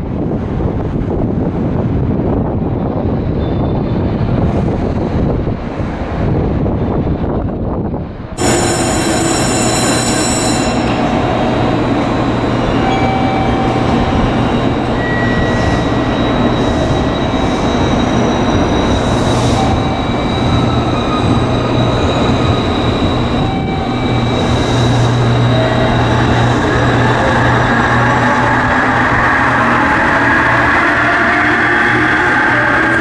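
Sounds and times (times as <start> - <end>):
electric train running: 8.4 - 33.0.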